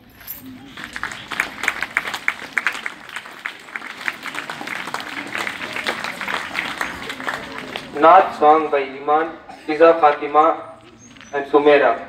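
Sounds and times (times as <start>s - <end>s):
audience applauding: 0.6s - 8.4s.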